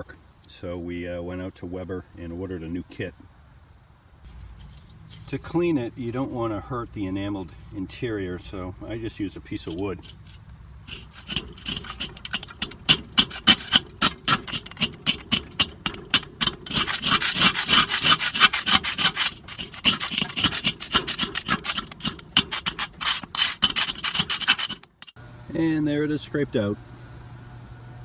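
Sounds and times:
wood scraping metal grill bowl: 4.3 - 25.2.

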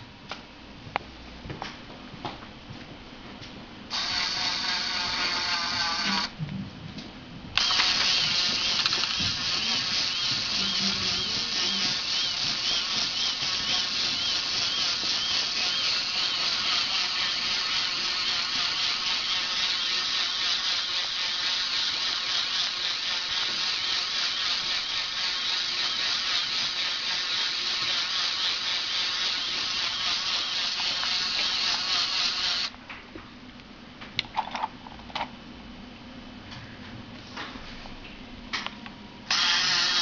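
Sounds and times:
electric motor and gears whirring: 3.9 - 6.4, 7.6 - 32.8, 39.3 - 40.0.

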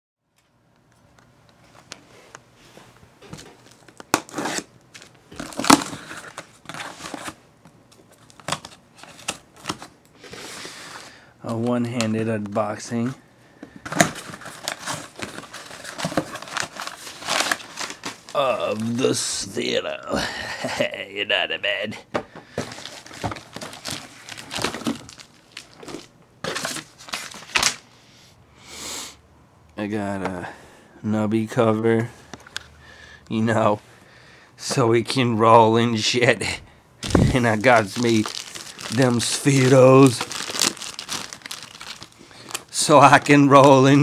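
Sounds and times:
hands rummaging in cardboard box: 13.9 - 19.0, 22.6 - 27.8, 37.0 - 44.0.

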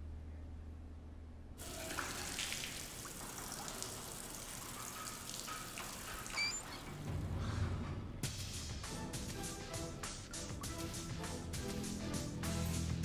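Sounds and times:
water running from a tap: 1.6 - 7.0
water splashing on face: 1.6 - 7.0.

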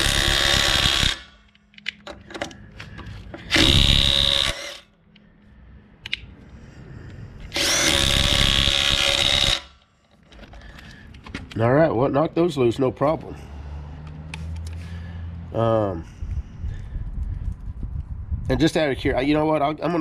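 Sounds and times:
impact wrench hammering: 7.5 - 9.8.

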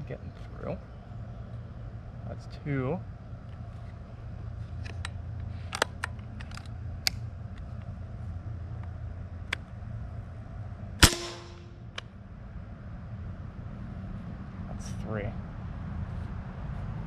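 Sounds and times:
steady low hum: 0.0 - 17.0
air rifle shot: 11.0 - 12.0.

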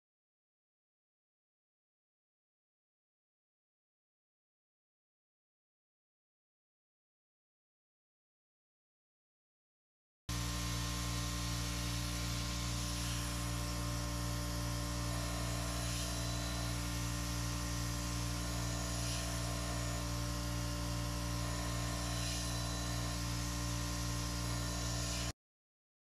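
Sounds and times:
electric motor hum: 10.3 - 25.3.

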